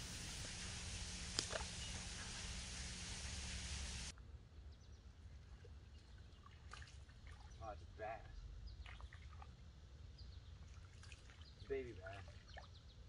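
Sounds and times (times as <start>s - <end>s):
faint bird chirps: 0.0s - 4.1s
steady hiss: 0.0s - 4.1s.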